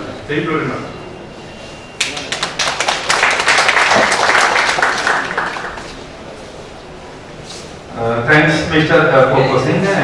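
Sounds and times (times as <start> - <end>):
audience applauding: 2.0 - 6.1.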